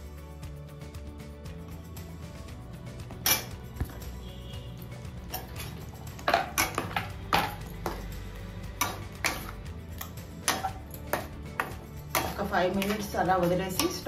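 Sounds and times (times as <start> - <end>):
metal spatula scraping a pot: 4.9 - 8.0, 8.8 - 14.0.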